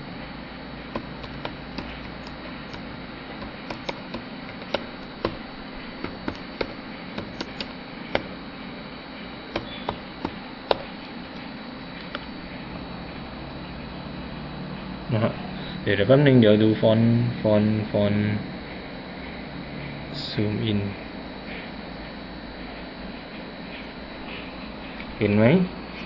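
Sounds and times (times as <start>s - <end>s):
steady low hum: 0.0s - 26.0s
keyboard keystroke clicks: 1.0s - 5.4s, 6.0s - 8.3s.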